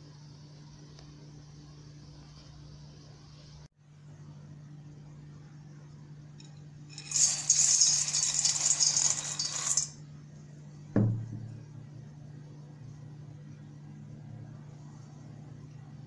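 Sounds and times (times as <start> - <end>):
low steady hum: 0.0 - 16.0
single knock: 11.0 - 11.5.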